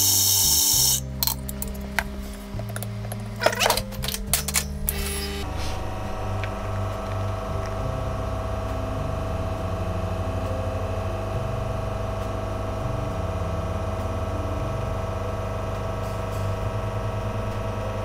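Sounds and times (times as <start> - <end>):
espresso machine pump running: 0.0 - 1.4, 5.0 - 18.0.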